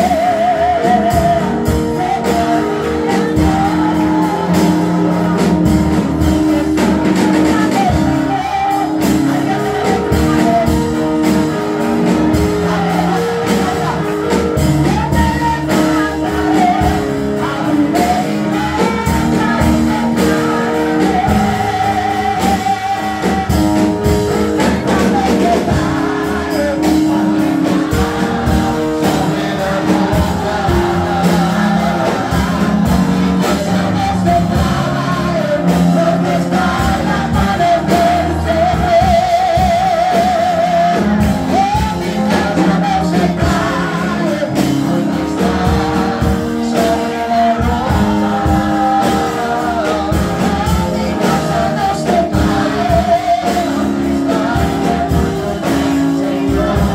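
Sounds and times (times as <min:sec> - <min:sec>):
live band playing: 0:00.0 - 0:56.9
woman singing into a microphone: 0:14.8 - 0:23.7.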